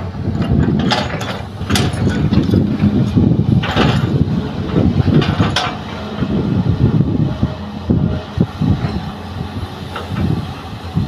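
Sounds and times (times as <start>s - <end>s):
excavator diesel engine rumbling: 0.0s - 11.0s.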